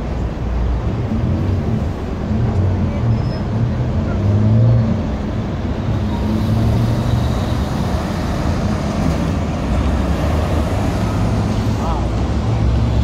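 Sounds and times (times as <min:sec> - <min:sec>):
busy road traffic: 0:00.0 - 0:13.0.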